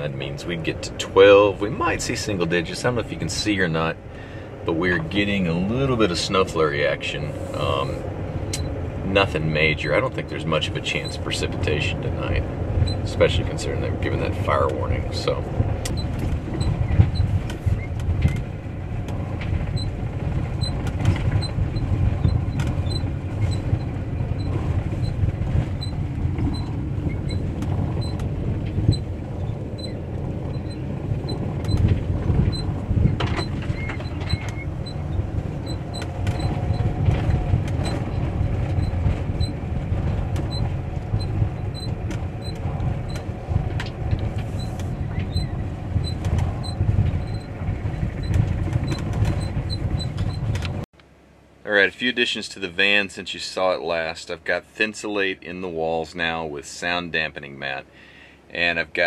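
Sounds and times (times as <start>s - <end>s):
low rumble of engine and tyres: 0.0s - 59.0s
van knocks and creaks over bumps: 7.6s - 50.9s.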